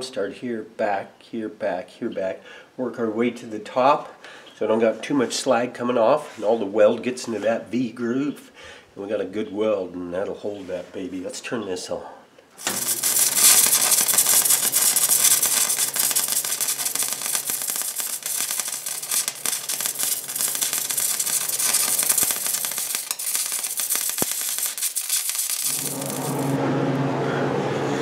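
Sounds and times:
welding arc crackling: 12.6s - 26.7s
steady hum: 25.5s - 28.0s.

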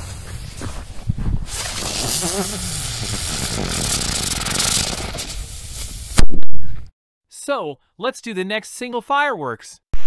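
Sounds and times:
firework fuse hissing: 1.4s - 6.3s.

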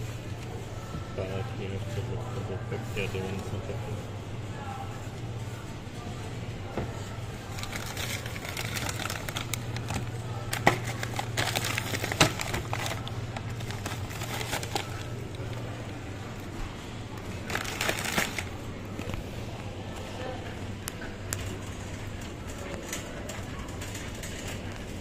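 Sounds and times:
plastic bag crinkling: 7.4s - 15.9s, 17.2s - 19.1s.

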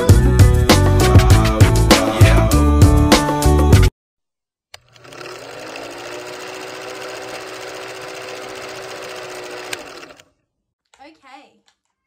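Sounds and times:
film projector whirring rattle: 4.8s - 10.3s.

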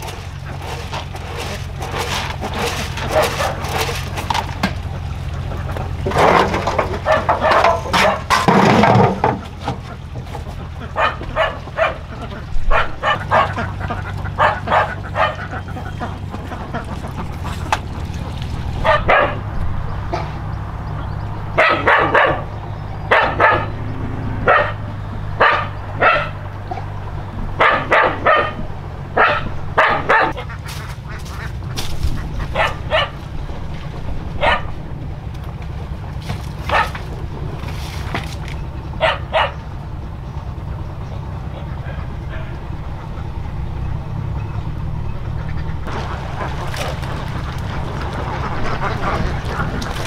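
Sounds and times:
steady low hum: 0.0s - 50.0s
dog barking: 3.1s - 3.6s, 7.0s - 8.3s, 11.0s - 12.1s, 12.7s - 13.6s, 14.4s - 15.5s, 18.8s - 19.5s, 21.6s - 22.5s, 23.1s - 23.8s, 24.4s - 26.9s, 27.6s - 28.6s, 29.2s - 30.5s, 32.5s - 33.2s, 34.4s - 34.8s, 36.7s - 37.0s, 39.0s - 39.6s.

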